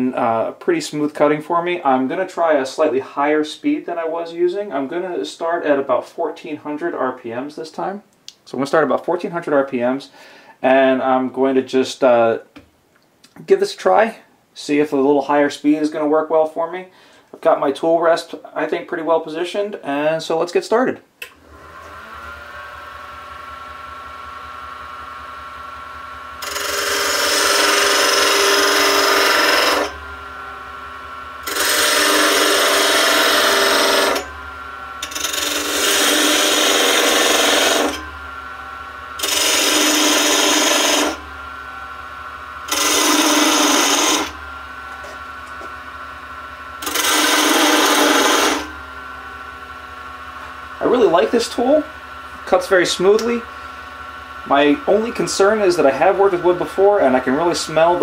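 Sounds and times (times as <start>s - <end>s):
wood lathe motor hum: 21.3s - 58.0s
tool scraping spinning wood: 23.9s - 42.0s, 42.6s - 46.2s, 46.8s - 49.4s, 50.1s - 58.0s.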